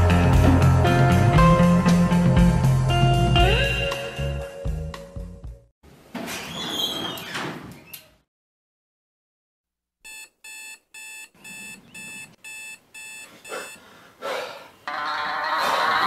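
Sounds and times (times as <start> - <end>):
music: 0.0 - 5.7, 14.9 - 16.0
alarm clock beeping: 10.1 - 13.8.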